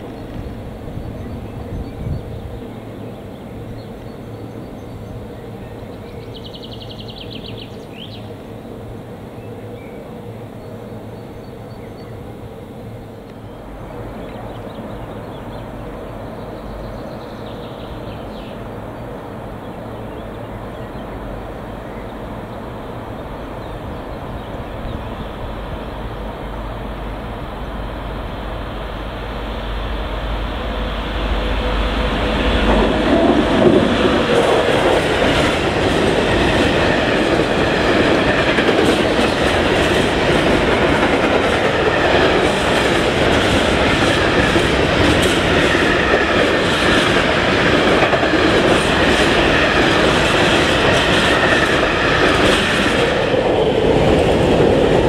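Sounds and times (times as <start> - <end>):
freight train rumbling past: 0.0 - 55.0
train wheel clatter: 32.1 - 55.0.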